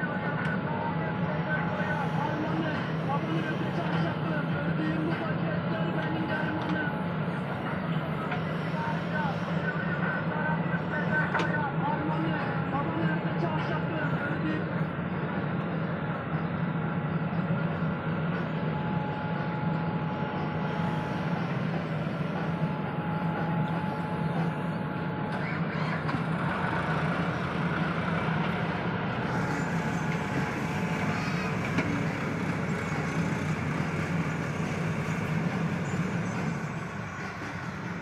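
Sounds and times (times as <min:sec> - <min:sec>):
thin steady whine: 0:00.0 - 0:26.4, 0:27.1 - 0:38.0
digger diesel engine under load: 0:20.5 - 0:38.0
tractor engine running: 0:25.4 - 0:36.0.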